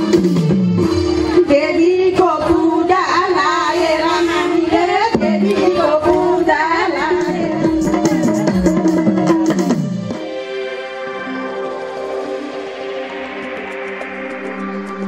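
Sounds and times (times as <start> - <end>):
woman singing: 1.5 - 8.5.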